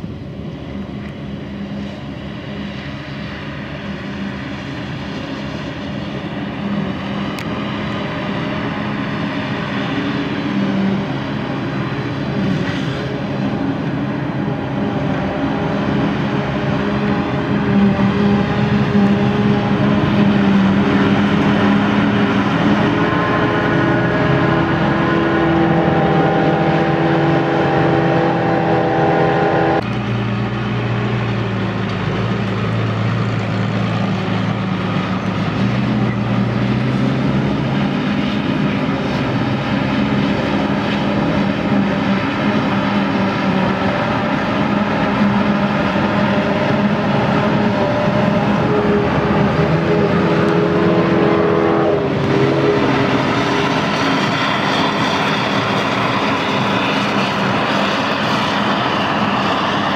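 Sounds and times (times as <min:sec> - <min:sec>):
tractor engine running: 0:00.0 - 0:51.3
forage harvester running: 0:00.0 - 0:59.9.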